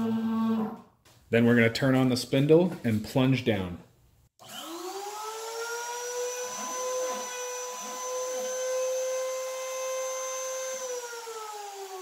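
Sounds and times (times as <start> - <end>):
router spindle motor whine: 4.4 - 12.0.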